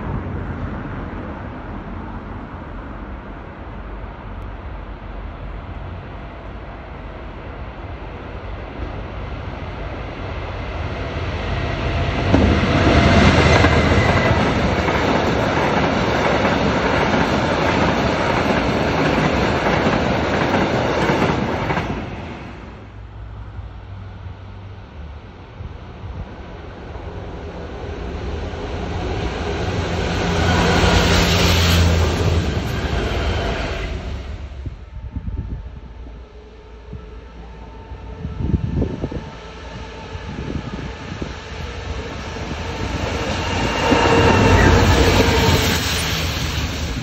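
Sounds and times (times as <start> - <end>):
diesel locomotive engine: 0.0 - 47.0
distant train: 0.0 - 47.0
train wheels rolling on rails: 8.2 - 22.8, 25.9 - 34.8, 38.9 - 47.0.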